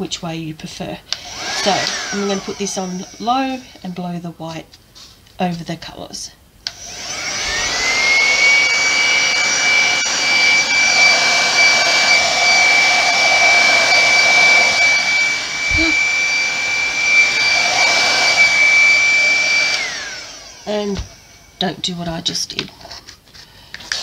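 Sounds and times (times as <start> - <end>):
hair dryer whine and blowing air: 1.1 - 3.9, 6.6 - 22.5.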